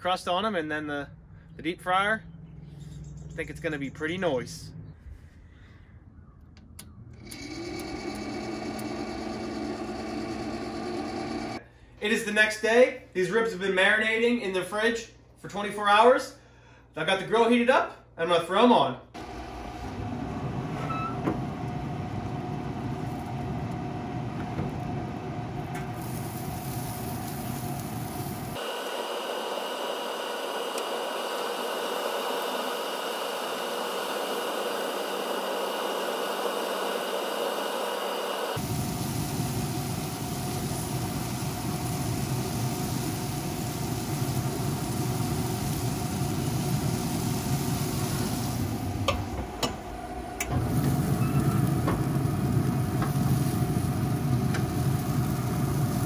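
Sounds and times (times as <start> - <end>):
pellet grill fan hum: 6.2 - 12.8, 19.2 - 56.0.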